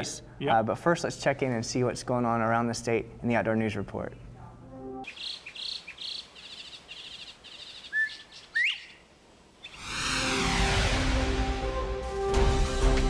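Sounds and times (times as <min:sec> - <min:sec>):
bird whistling rising call: 0:07.7 - 0:09.0, 0:09.6 - 0:10.7
high chirps: 0:09.6 - 0:11.1
whooshing transition effect: 0:09.7 - 0:12.4.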